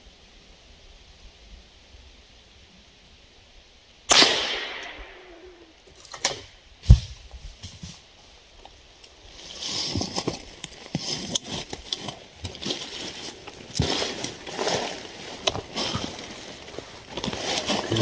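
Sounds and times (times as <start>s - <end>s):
clothing rustling and scuffing: 9.3s - 18.0s.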